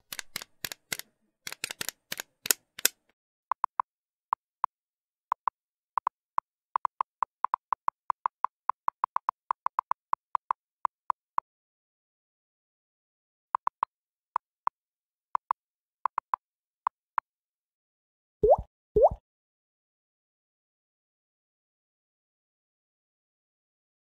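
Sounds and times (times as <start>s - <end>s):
sharp clicks: 0.0s - 3.8s.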